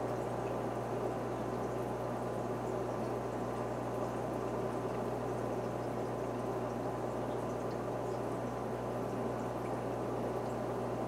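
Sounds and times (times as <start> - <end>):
aquarium water bubbling: 0.0 - 11.0
low steady hum: 0.0 - 11.0.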